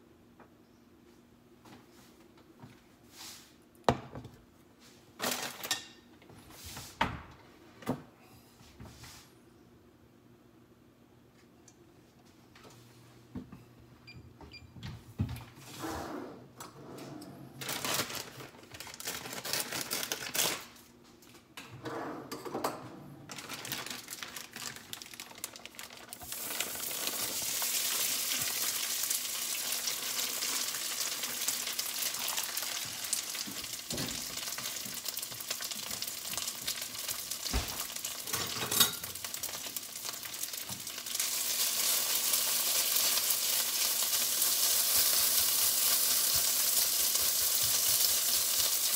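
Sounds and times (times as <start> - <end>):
potatoes sizzling in a frying pan: 26.0 - 48.9.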